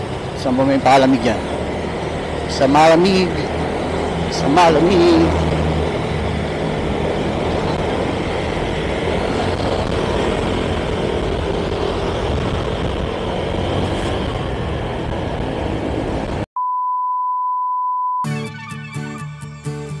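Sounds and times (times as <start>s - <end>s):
motorcycle engine: 0.0s - 16.5s
road noise: 0.0s - 16.5s
surrounding vehicles: 0.0s - 16.5s
wind rush: 0.0s - 16.5s
high test-tone beep: 16.6s - 18.3s.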